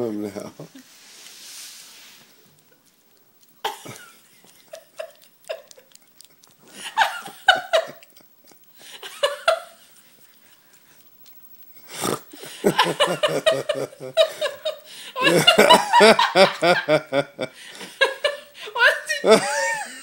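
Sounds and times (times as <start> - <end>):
dog licking wet smacking: 2.4 - 9.1, 9.8 - 11.8
person laughing: 3.6 - 5.9, 6.7 - 9.8, 12.4 - 20.0.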